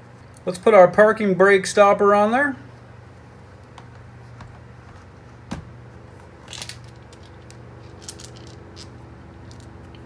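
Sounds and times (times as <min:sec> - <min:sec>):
steady low hum: 0:00.0 - 0:10.0
metal parts clicking: 0:06.4 - 0:10.0.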